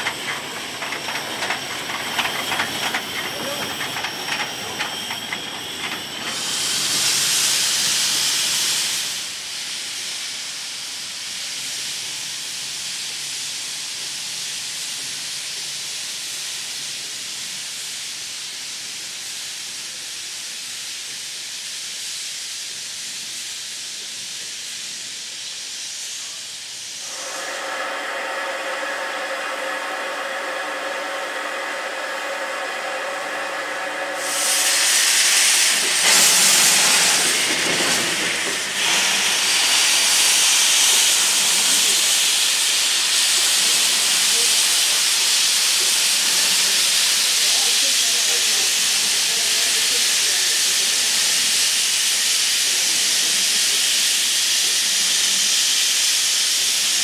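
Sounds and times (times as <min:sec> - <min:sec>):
steam hissing from locomotive: 0:00.0 - 0:57.0
steam whistle blast: 0:27.0 - 0:35.1.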